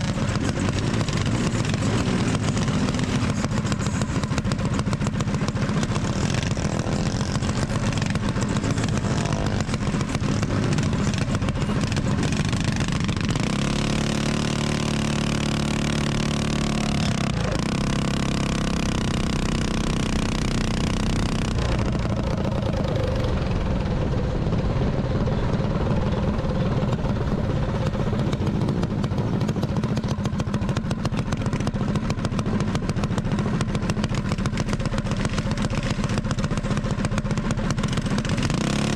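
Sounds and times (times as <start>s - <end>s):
mini bike engines revving: 0.0s - 38.9s
road noise: 0.0s - 38.9s.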